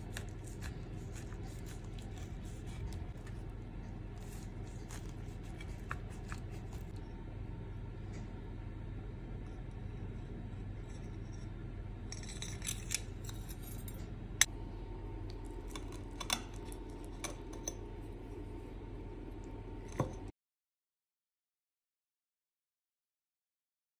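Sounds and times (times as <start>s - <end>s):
fork scraping through pie: 0.0s - 3.5s, 4.1s - 7.0s
steady low hum: 0.0s - 20.3s.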